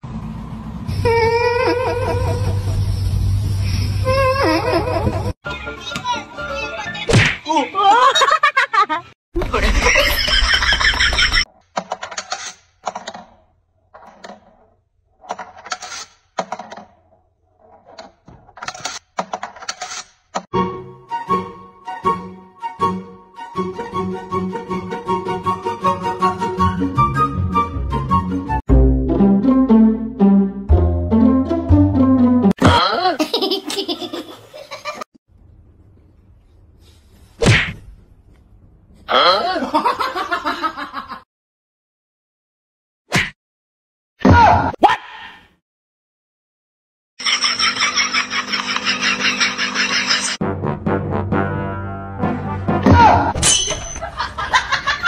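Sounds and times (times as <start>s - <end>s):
loud laughter: 1.5s - 2.9s, 7.7s - 11.5s, 32.7s - 35.0s, 39.3s - 41.2s, 47.2s - 50.4s, 54.0s - 55.0s
plucked string music: 28.7s - 32.5s.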